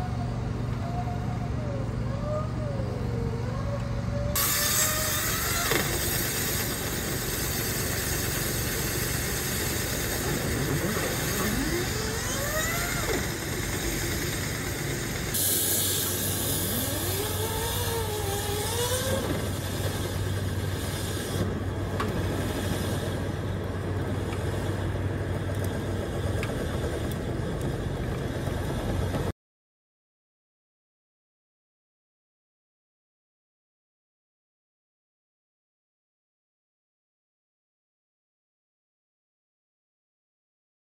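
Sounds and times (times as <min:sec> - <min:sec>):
whine rising and falling: 0:00.0 - 0:29.0
vent cleaning machine rushing: 0:03.6 - 0:29.3.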